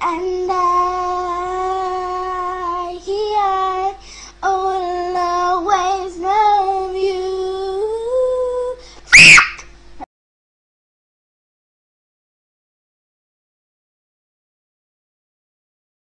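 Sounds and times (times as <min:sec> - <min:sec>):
girl singing long notes: 0:00.0 - 0:09.0.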